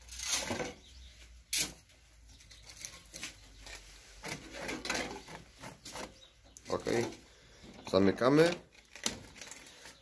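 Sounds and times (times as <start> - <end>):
rustling and scraping in hutch: 0.0 - 10.0.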